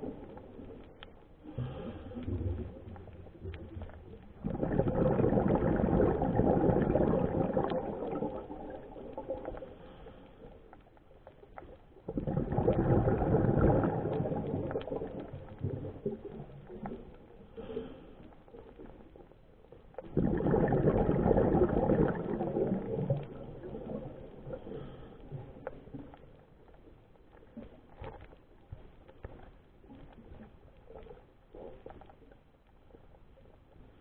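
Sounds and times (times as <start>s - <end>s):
quiet breathing: 0.0s - 5.2s, 6.8s - 12.0s, 12.7s - 20.0s, 22.1s - 34.0s
exhaled bubbles rushing underwater: 0.0s - 10.0s, 11.2s - 17.8s, 18.5s - 28.3s.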